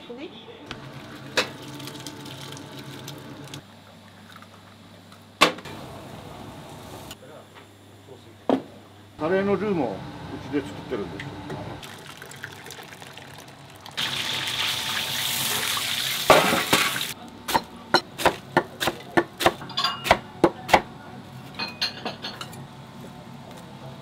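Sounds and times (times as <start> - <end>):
water running from tap: 0.7 - 3.6, 11.8 - 17.2
dishes and utensils clinking: 19.6 - 20.2, 21.6 - 22.6.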